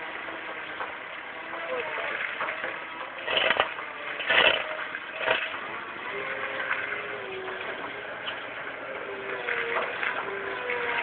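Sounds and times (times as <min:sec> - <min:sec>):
machine running steadily: 0:00.0 - 0:11.0
milling attachment grinding asphalt: 0:00.0 - 0:11.0
loud crunching bursts: 0:02.2 - 0:07.1.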